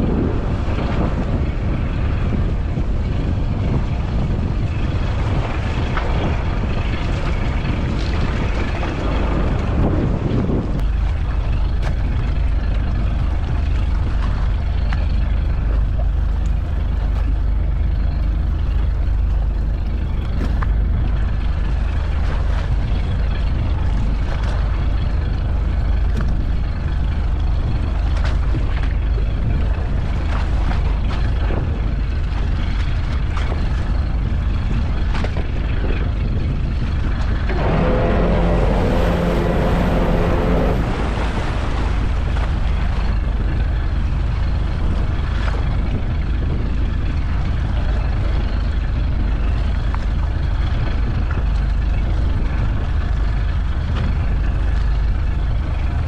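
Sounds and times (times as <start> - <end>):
boat engine humming: 0.0 - 56.0
wind: 0.0 - 56.0
water washing: 37.1 - 44.5.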